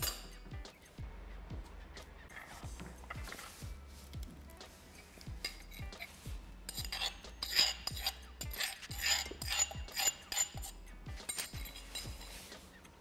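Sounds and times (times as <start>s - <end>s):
metal spoon scraping stone mortar: 0.0s - 0.5s, 4.9s - 13.0s
background music with steady beat: 0.0s - 13.0s.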